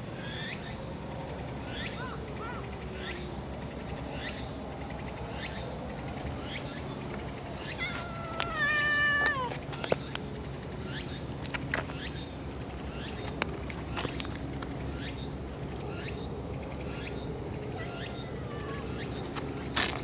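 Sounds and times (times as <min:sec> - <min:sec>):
cat meowing: 0:07.8 - 0:09.6, 0:17.8 - 0:19.0.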